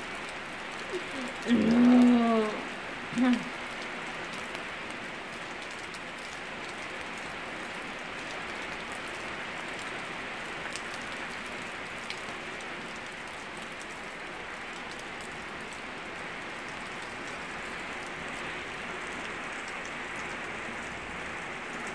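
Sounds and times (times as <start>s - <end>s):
rain on leaves: 0.0s - 21.9s.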